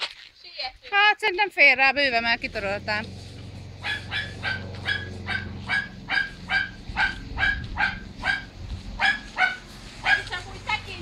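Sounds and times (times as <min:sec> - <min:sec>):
dog barking: 0:03.8 - 0:10.4.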